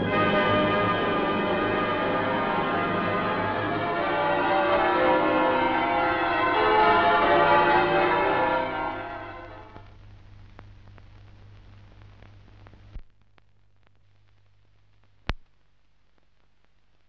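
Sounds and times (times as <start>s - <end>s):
church bells pealing: 0.0s - 9.8s
low film soundtrack hum: 0.0s - 16.1s.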